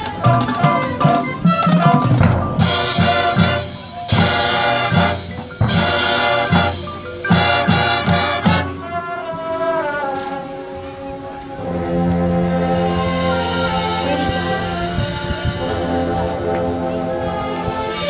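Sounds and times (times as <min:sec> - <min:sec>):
steady drum beat: 0:00.0 - 0:09.4
marching band playing: 0:00.0 - 0:18.0
loud brass chords: 0:00.2 - 0:18.0.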